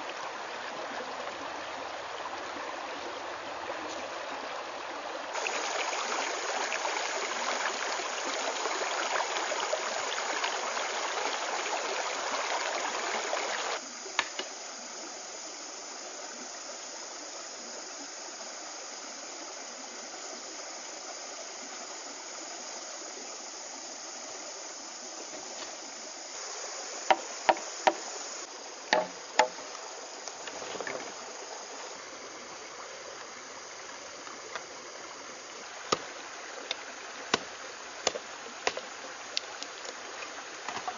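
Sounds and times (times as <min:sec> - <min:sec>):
stream water running over rocks: 0:00.0 - 0:40.9
sharp knocks: 0:28.9 - 0:29.6.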